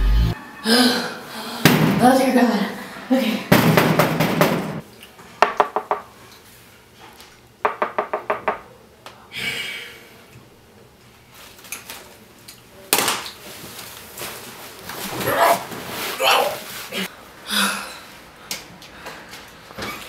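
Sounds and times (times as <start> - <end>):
knuckles knocking on door: 5.4 - 6.0, 7.7 - 8.6.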